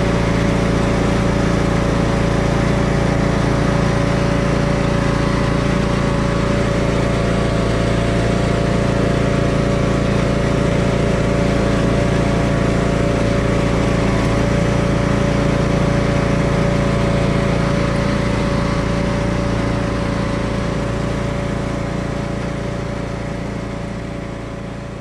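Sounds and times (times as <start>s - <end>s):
riding lawn tractor engine running: 0.0s - 25.0s.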